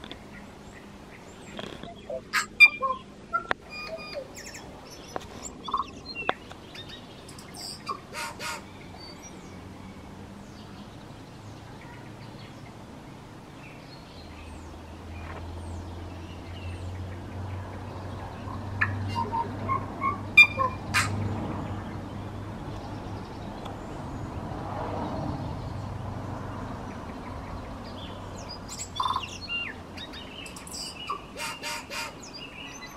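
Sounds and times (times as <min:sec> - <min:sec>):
distant thin bird calls: 0:00.1 - 0:09.6.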